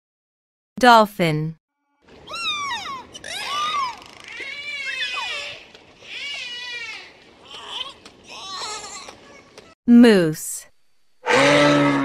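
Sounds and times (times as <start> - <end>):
dolphin whistles and squeals: 2.2 - 5.6.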